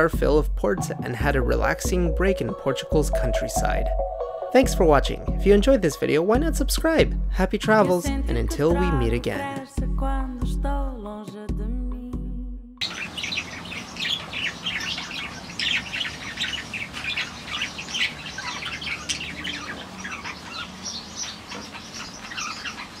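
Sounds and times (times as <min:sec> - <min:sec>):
budgerigars chirping: 0:12.8 - 0:23.0.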